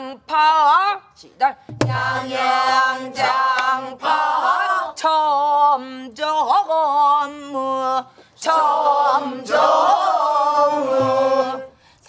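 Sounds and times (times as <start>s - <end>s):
group singing in unison: 1.8s - 11.9s.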